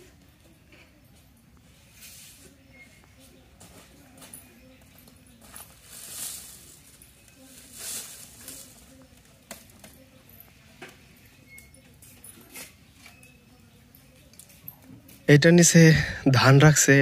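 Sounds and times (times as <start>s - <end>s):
dry pods rustling: 5.0s - 10.4s.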